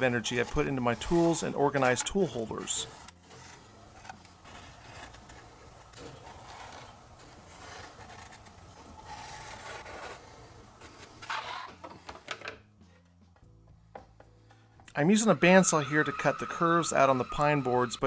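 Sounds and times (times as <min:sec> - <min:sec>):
objects rubbing on wood: 0:00.0 - 0:13.2.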